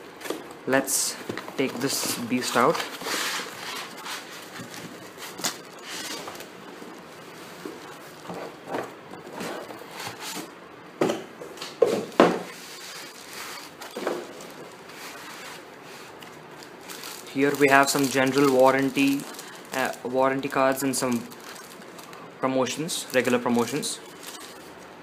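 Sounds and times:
cardboard and foam rustling: 0:01.2 - 0:10.5, 0:12.0 - 0:22.2.

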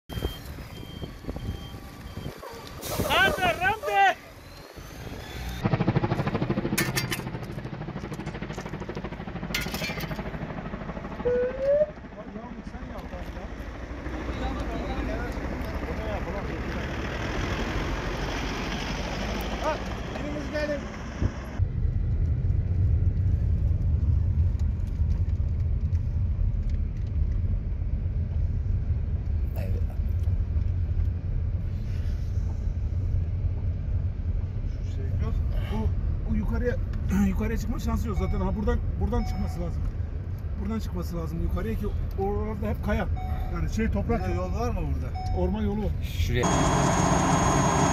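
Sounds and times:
helicopter rotor beating: 0:02.5 - 0:18.2, 0:46.4 - 0:47.9
short rising tone: 0:46.4 - 0:47.9.

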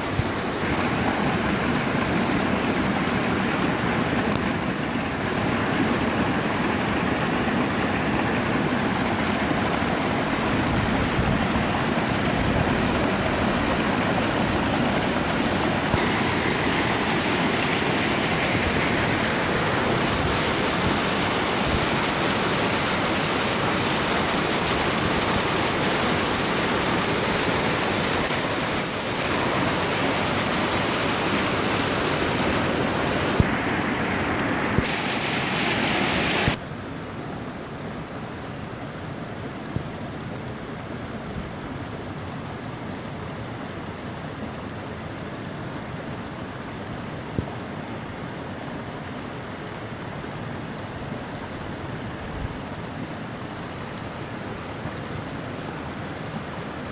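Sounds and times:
waterfall rushing: 0:00.0 - 0:36.6.

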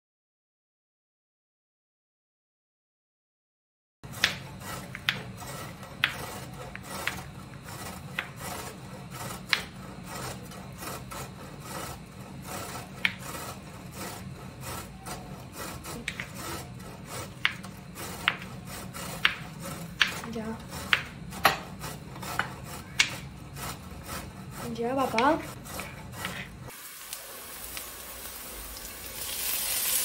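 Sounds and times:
grater rasping: 0:04.1 - 0:26.8.

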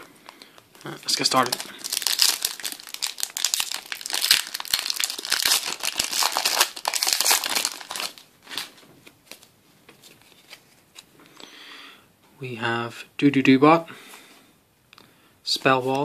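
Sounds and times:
cards rustling: 0:00.5 - 0:11.1
foil wrapper tearing and crinkling: 0:00.8 - 0:08.7.

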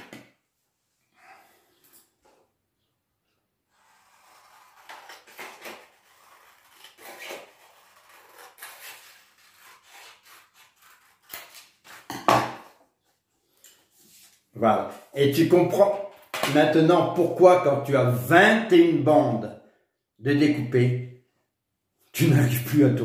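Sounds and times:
scissors snipping paper: 0:03.8 - 0:12.2.

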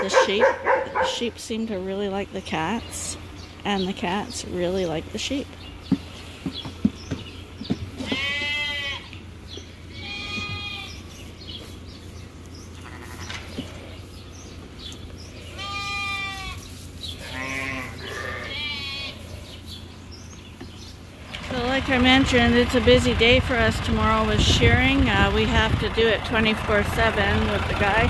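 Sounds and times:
lambs bleating: 0:08.0 - 0:09.2, 0:09.9 - 0:11.1, 0:12.7 - 0:13.9, 0:15.3 - 0:19.4.

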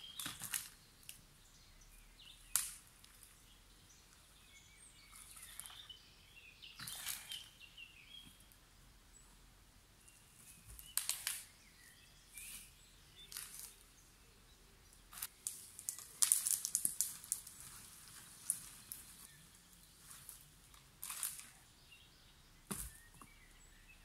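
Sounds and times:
branches rustling and crackling: 0:00.0 - 0:01.4, 0:02.0 - 0:08.6, 0:10.0 - 0:14.1, 0:14.9 - 0:21.9.

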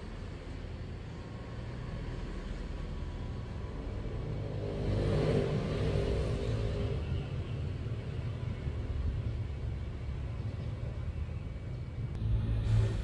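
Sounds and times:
motor vehicle passing: 0:03.8 - 0:07.2, 0:12.2 - 0:13.0
steady low rumble: 0:12.0 - 0:13.0.

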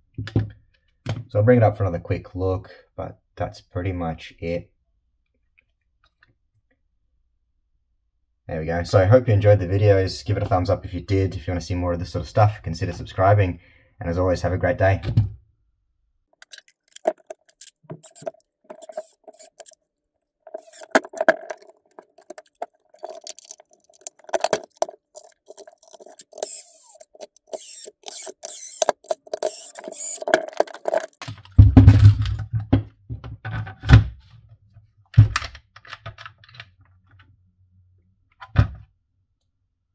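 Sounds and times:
impact driver driving screws: 0:16.4 - 0:19.8, 0:20.5 - 0:22.3, 0:23.0 - 0:31.2.

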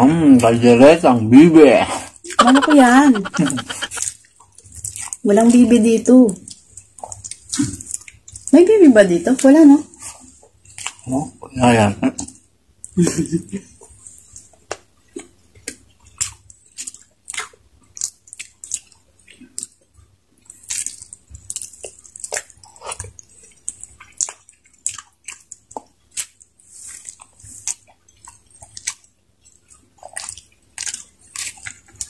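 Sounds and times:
wet chewing and lip-smacking: 0:02.4 - 0:04.1, 0:14.3 - 0:32.0.

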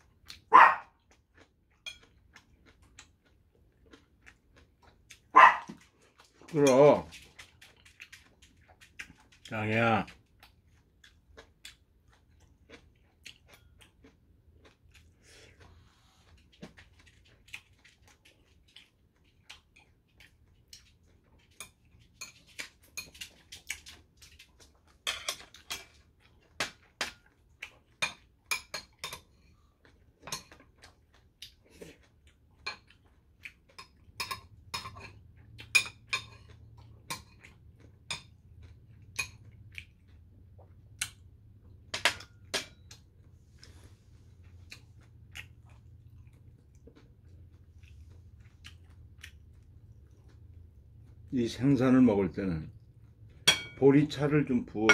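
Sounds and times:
metal utensils clinking on ceramic: 0:01.8 - 0:02.1, 0:21.5 - 0:24.0, 0:25.0 - 0:26.0, 0:28.0 - 0:29.4, 0:30.2 - 0:30.6, 0:33.8 - 0:37.4, 0:53.4 - 0:53.9.

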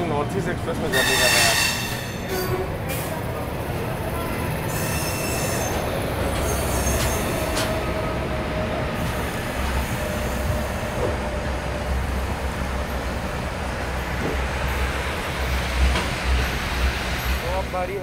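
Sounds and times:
train rumbling over rails: 0:00.0 - 0:18.0
faint wheel squeal: 0:00.9 - 0:02.0, 0:04.7 - 0:05.8.

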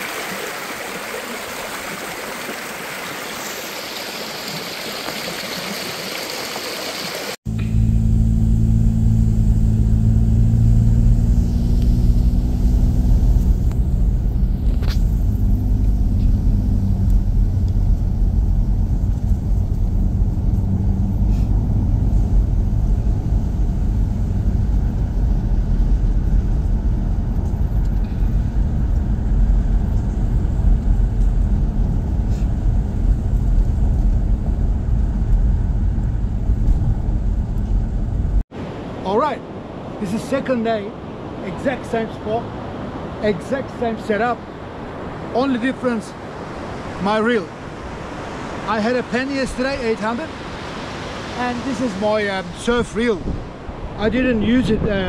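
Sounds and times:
waterfall rushing water: 0:00.0 - 0:07.4, 0:44.9 - 0:52.6
road noise: 0:00.0 - 0:55.0
vehicle engine rumble: 0:07.5 - 0:38.5.

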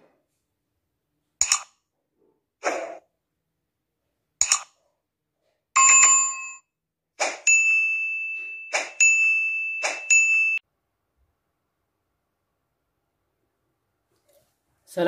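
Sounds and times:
notification bell ring: 0:05.8 - 0:06.6, 0:07.5 - 0:10.6.

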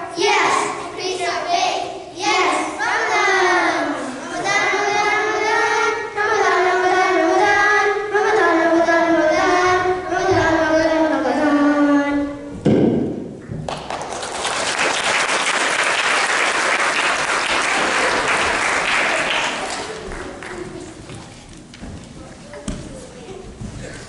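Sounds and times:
children singing: 0:00.0 - 0:12.5
audience applauding: 0:13.7 - 0:20.9.

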